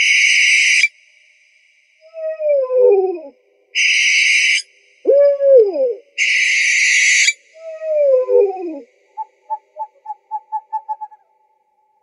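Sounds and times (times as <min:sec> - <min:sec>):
owl harsh hissing screech: 0:03.8 - 0:04.6
owl short pipping notes: 0:09.2 - 0:11.3.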